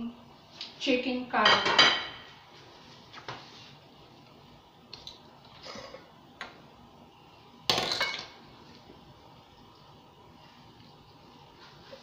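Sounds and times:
dishes clattering: 0:01.4 - 0:02.3, 0:07.7 - 0:08.4.

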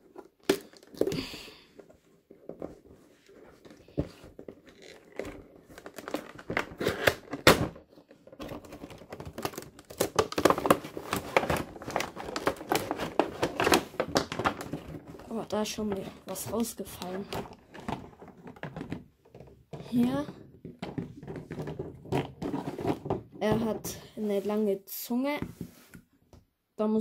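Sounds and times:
plastic crinkling: 0:08.0 - 0:19.1.

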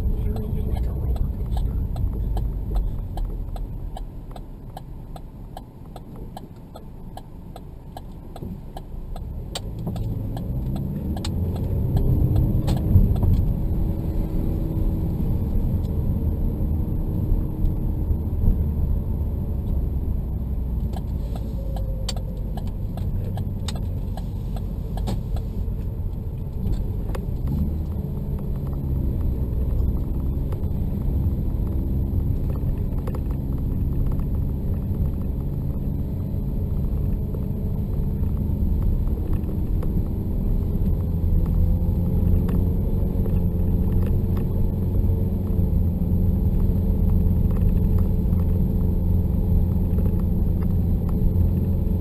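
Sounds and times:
car engine and tyre rumble: 0:00.0 - 0:52.0.

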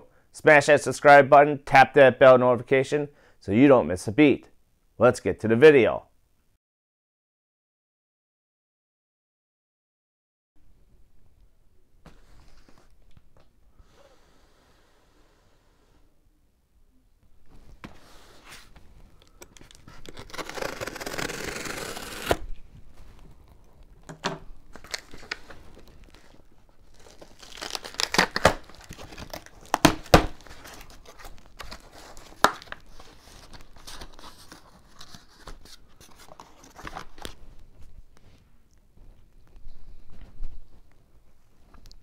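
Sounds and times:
cardboard rustling: 0:17.5 - 0:38.0
packing tape tearing: 0:19.2 - 0:22.4, 0:24.7 - 0:37.3.

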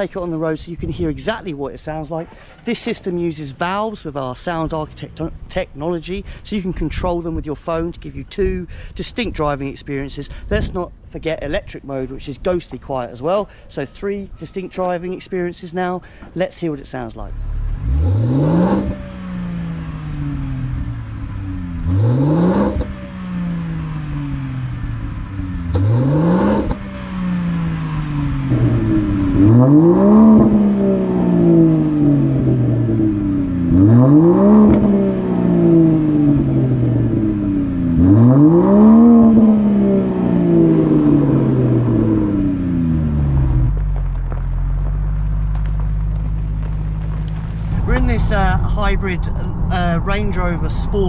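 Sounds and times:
steady low engine drone: 0:17.0 - 0:51.0
car engine revving: 0:17.1 - 0:51.0.

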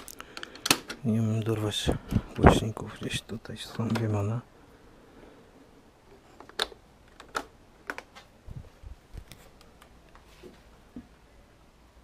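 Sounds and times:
plastic equipment clicks and knocks: 0:00.3 - 0:01.0, 0:03.7 - 0:04.2, 0:06.4 - 0:08.2.

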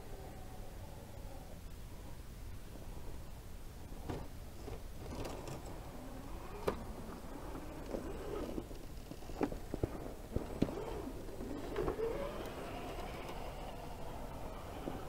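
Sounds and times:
toy car motor and gears whining: 0:05.0 - 0:15.0.

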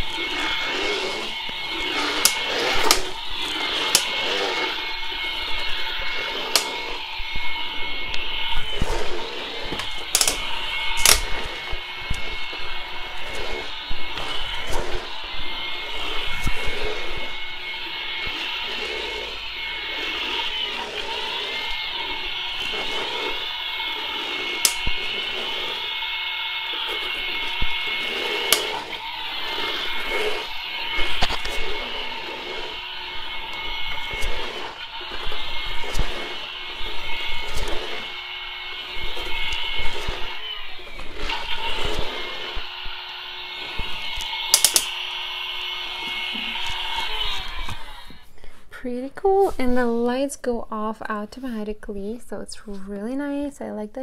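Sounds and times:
toy vacuum cleaner whirring: 0:00.0 - 0:50.9.

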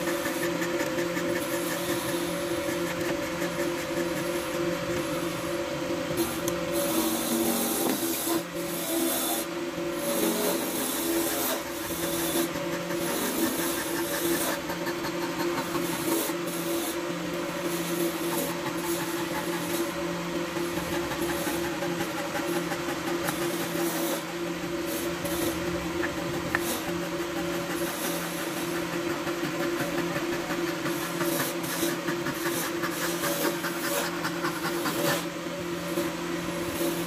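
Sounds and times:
power tool humming: 0:00.0 - 0:37.0
tool cutting and rubbing wood: 0:00.0 - 0:37.0.

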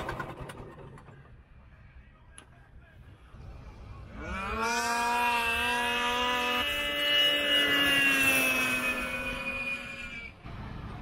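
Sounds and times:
snowmobile engines at full throttle: 0:03.3 - 0:11.0.

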